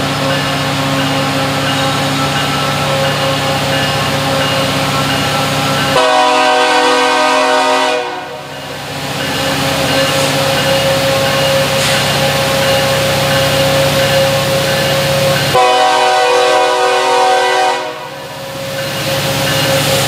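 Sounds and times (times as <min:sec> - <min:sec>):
diesel locomotive engine drone: 0:00.0 - 0:20.0
train horn blast: 0:05.9 - 0:08.5, 0:15.6 - 0:18.2.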